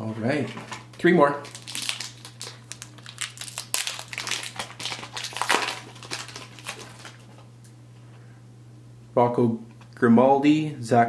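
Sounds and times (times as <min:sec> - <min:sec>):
wrapper crinkling and tearing: 0:01.4 - 0:07.5.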